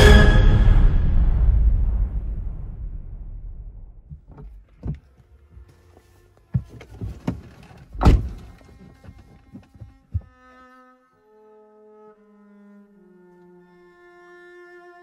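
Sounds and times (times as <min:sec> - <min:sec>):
car door shutting with thud: 0:04.1 - 0:05.2, 0:06.6 - 0:10.3
knocks and clicks in car: 0:04.1 - 0:05.2, 0:06.5 - 0:10.3.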